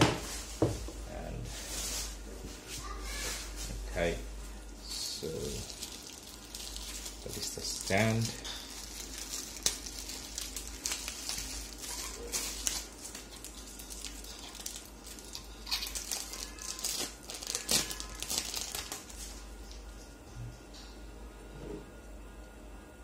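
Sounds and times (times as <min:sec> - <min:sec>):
plastic wrapping crinkling: 0:04.9 - 0:19.4.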